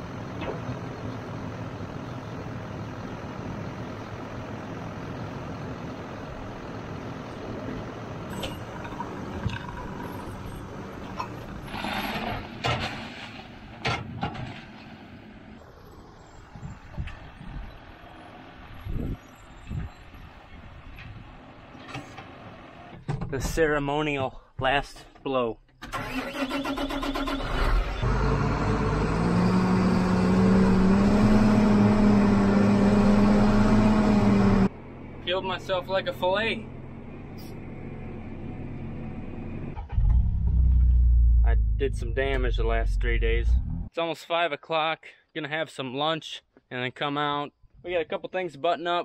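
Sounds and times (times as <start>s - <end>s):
tractor engine running: 0.0s - 13.8s
tractor loader running: 0.0s - 23.6s, 25.8s - 43.9s
tires dropping with sharp knocks: 11.0s - 15.0s.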